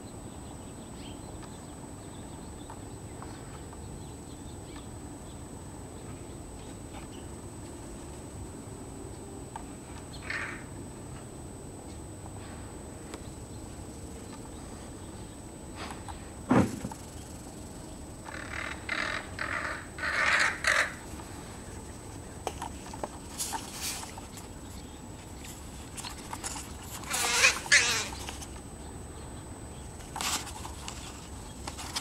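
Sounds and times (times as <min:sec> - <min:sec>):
crows cawing: 0:10.2 - 0:10.7, 0:18.2 - 0:21.1, 0:27.0 - 0:28.2.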